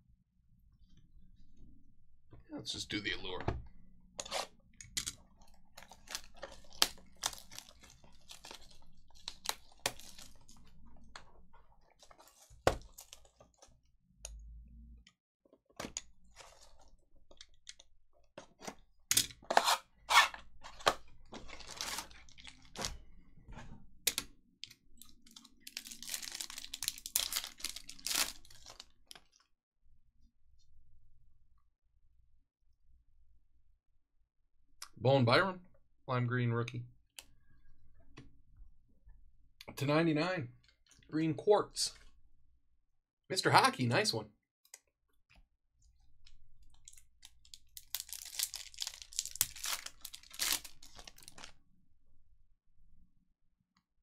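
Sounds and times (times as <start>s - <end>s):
foil wrapper crinkling and tearing: 5.4s - 10.8s, 11.9s - 13.6s, 20.7s - 23.0s, 25.0s - 29.4s, 46.6s - 51.6s.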